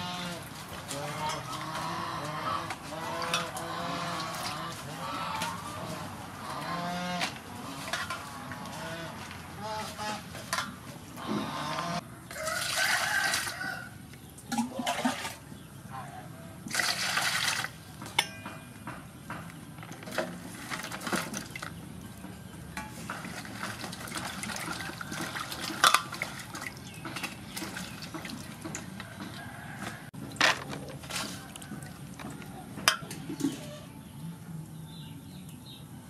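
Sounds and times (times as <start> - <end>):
water swishing and splashing: 0.0 - 6.4, 14.4 - 15.7, 16.7 - 17.9, 22.9 - 33.8.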